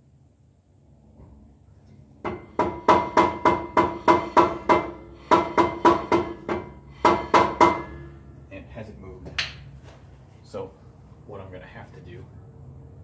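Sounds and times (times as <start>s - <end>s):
hammer striking metal rotor: 2.2s - 8.4s.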